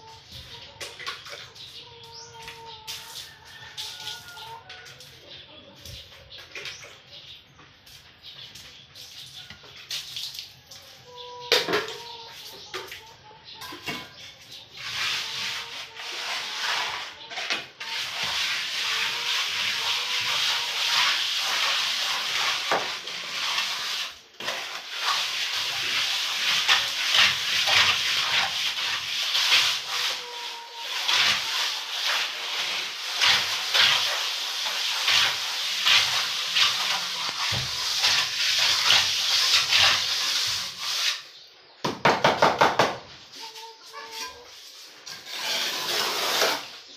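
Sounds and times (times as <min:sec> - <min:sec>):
float scraping over plaster: 0:13.8 - 0:41.4, 0:43.3 - 0:46.9.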